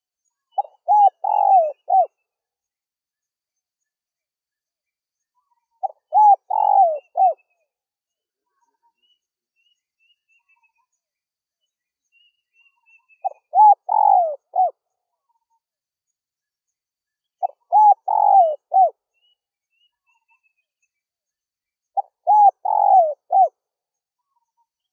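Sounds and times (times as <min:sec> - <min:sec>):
faint high bird chirps: 0:00.0 - 0:24.9
dove cooing: 0:00.6 - 0:02.1, 0:05.8 - 0:07.4, 0:13.2 - 0:14.7, 0:17.4 - 0:18.9, 0:22.0 - 0:23.5.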